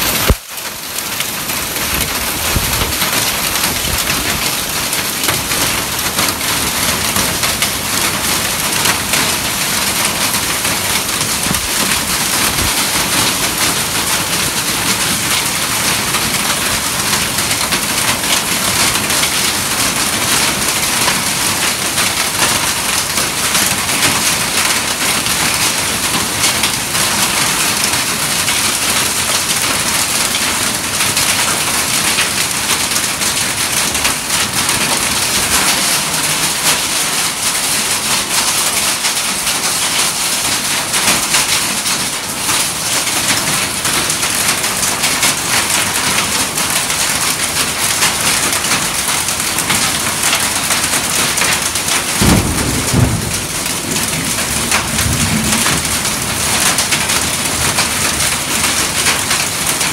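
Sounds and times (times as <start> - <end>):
heavy rain pouring: 0.0 - 59.9
low thunder rumble: 52.2 - 56.8.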